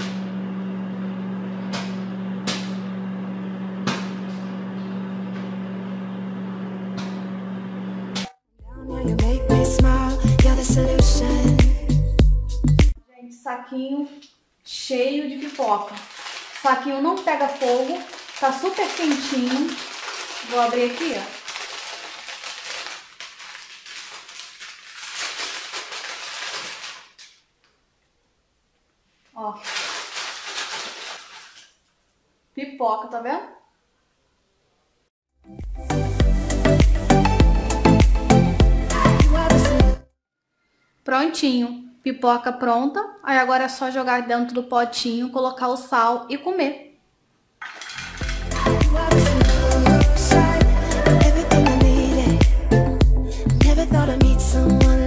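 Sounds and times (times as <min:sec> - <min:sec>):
microwave oven humming: 0:00.0 - 0:08.2
paper bag crinkling: 0:14.9 - 0:27.5, 0:29.4 - 0:31.9, 0:47.6 - 0:50.3
popcorn popping: 0:15.6 - 0:23.2.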